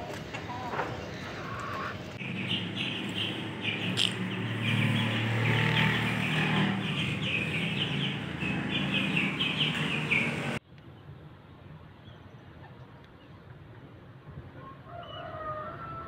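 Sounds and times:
chicks peeping: 0.1 - 10.6.

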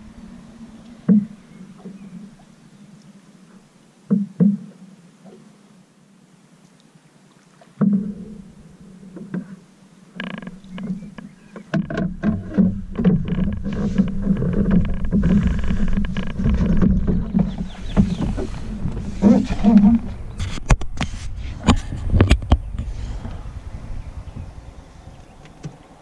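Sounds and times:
scraping and rumbling in canoe: 0.0 - 2.5, 7.9 - 26.0
paddle knocking on canoe hull: 10.4 - 20.8.

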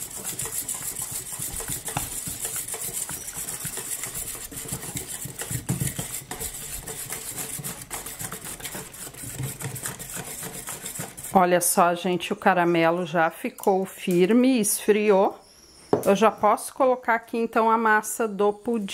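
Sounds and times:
whisk beating batter in metal bowl: 0.0 - 11.8.

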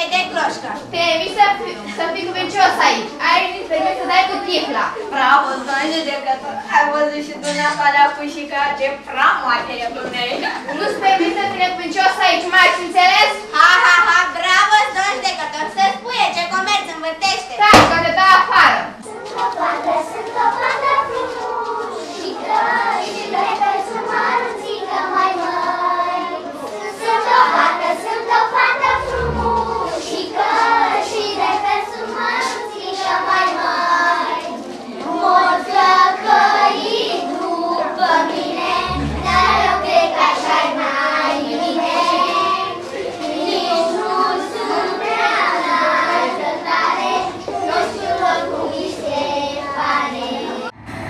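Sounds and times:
girls singing together: 19.0 - 50.8
dull low thumps: 28.9 - 30.0, 38.9 - 40.4, 50.8 - 51.0.

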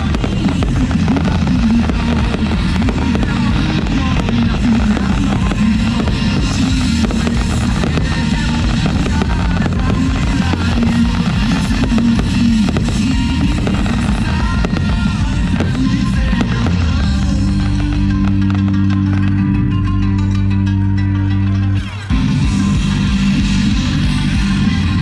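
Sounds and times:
fireworks bursting and crackling: 0.0 - 19.8
loud music: 0.0 - 25.0.

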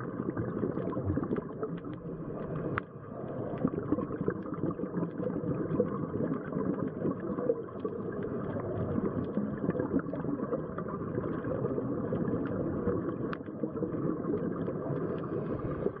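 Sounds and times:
faint small clicks: 1.3 - 2.9, 13.2 - 13.6
underwater rumbling hiss: 13.9 - 16.0.

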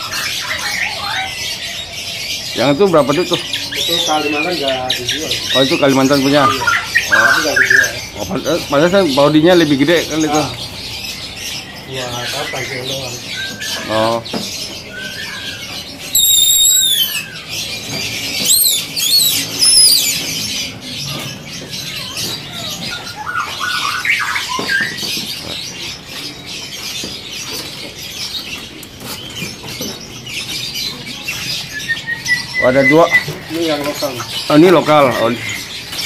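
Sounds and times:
songbirds chirping: 0.0 - 36.0
whistled bird song: 11.6 - 25.3, 29.7 - 36.0.

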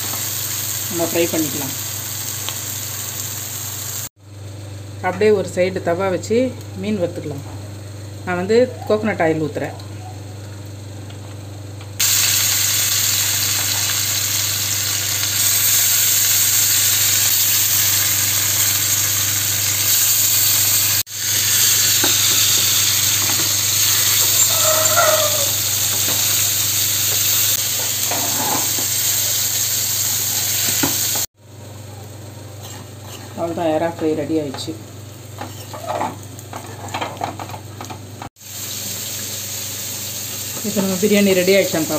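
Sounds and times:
hot oil sizzling: 0.0 - 4.7, 12.0 - 31.8, 32.5 - 41.9.

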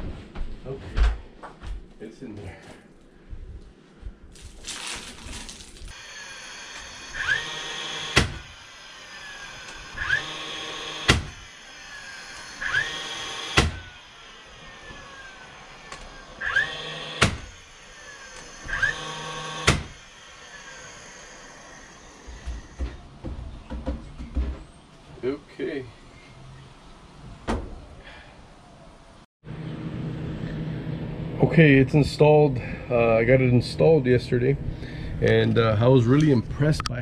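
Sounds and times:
cordless drill whining: 5.9 - 23.0.

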